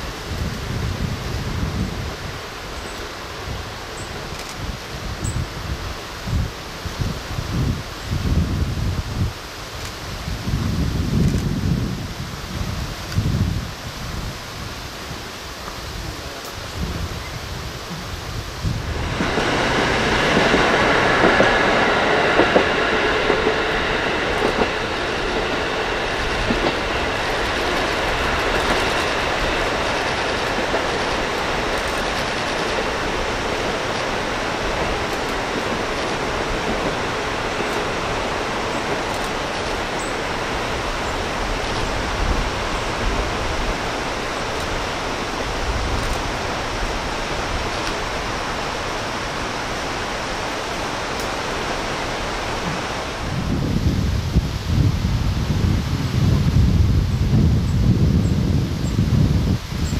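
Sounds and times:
diesel railcar engine and wheels: 0.0s - 59.9s
river rushing: 12.0s - 56.2s.

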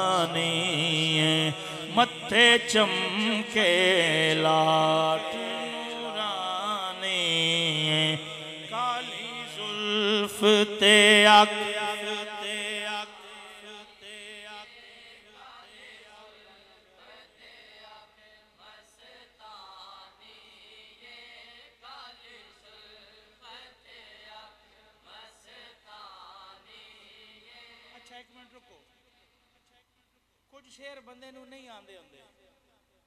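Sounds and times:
man singing: 0.0s - 14.6s.

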